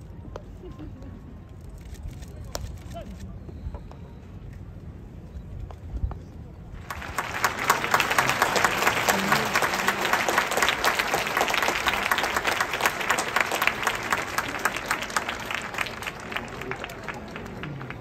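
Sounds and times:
crowd applauding: 6.8s - 18.0s.

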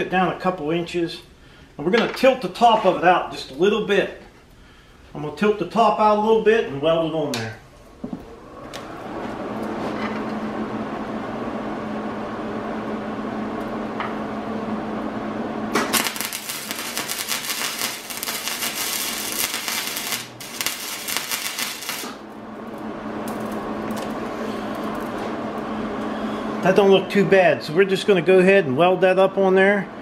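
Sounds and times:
low hum: 7.6s - 26.7s
arc welder crackling: 15.7s - 26.9s.

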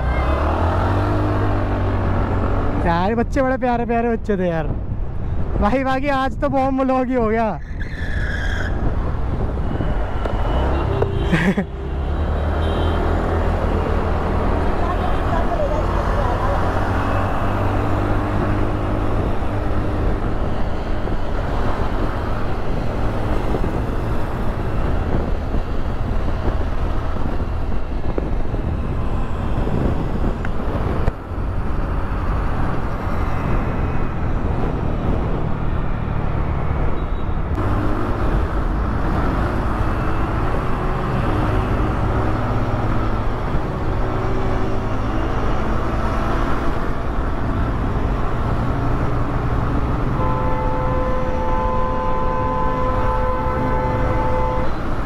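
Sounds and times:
road noise: 0.0s - 55.0s
surrounding traffic: 0.0s - 55.0s
wind noise: 0.0s - 55.0s.

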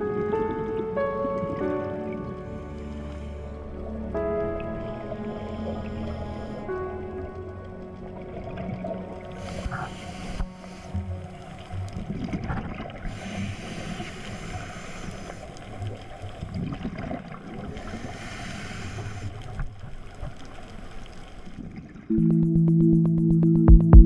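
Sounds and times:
muffled underwater noise: 0.0s - 21.4s
synthesizer music: 22.1s - 24.0s.

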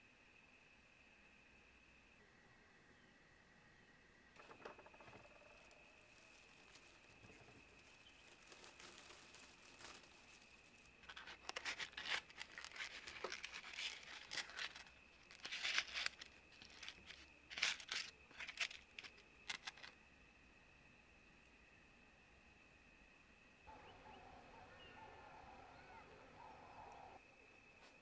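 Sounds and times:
dried herbs and paper crackling: 6.1s - 19.9s.

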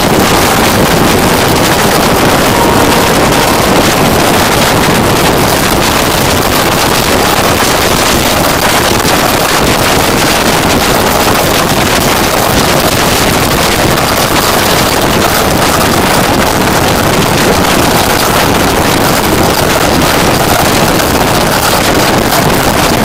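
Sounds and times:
train running on rails: 0.0s - 23.0s
wind rushing over microphone: 0.0s - 23.0s.

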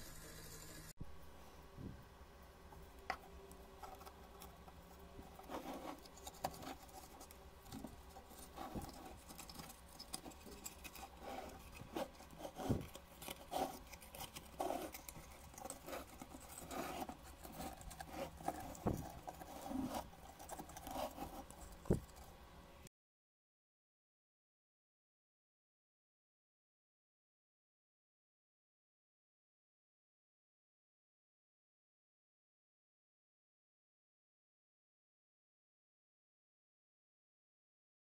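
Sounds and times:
fingers rustling twine: 3.4s - 22.3s.

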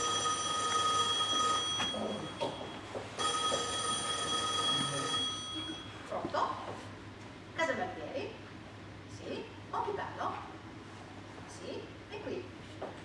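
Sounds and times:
telephone ringing: 0.0s - 6.0s.

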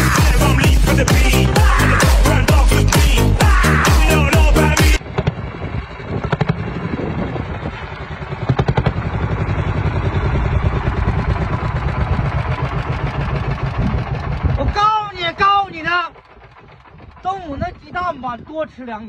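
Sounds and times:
dance music with heavy beat: 0.0s - 5.0s
tractor engine running: 0.0s - 19.0s
sharp engine knocks: 4.8s - 7.2s, 8.2s - 10.2s.

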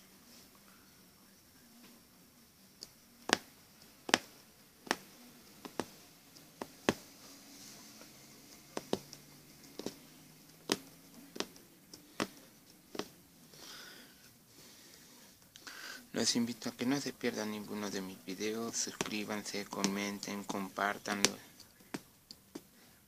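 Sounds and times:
punch needle piercing fabric: 3.2s - 6.0s, 8.7s - 10.0s, 10.7s - 11.6s, 12.2s - 13.2s.

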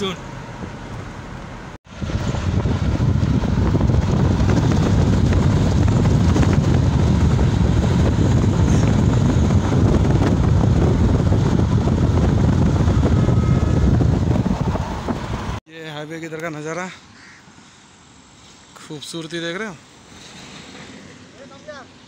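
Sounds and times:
road noise: 0.0s - 22.0s
wind buffeting microphone: 1.9s - 15.6s.

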